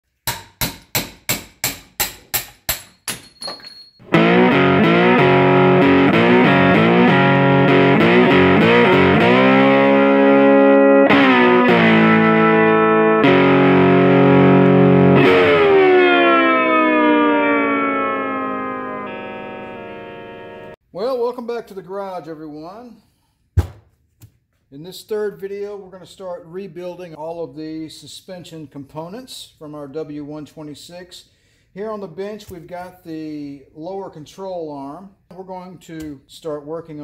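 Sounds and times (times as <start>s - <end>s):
distorted electric guitar riff: 4.0s - 20.8s.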